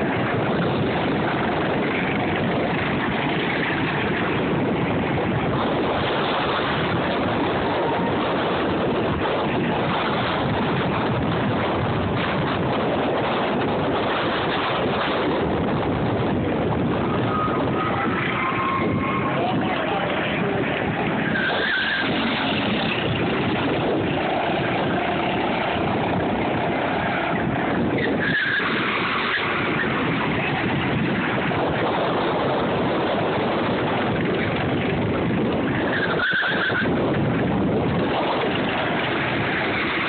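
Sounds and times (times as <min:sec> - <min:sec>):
go-kart engines: 0:00.0 - 0:40.0
tyre squeals: 0:17.1 - 0:19.8, 0:21.2 - 0:23.0, 0:27.0 - 0:29.9, 0:35.8 - 0:36.9.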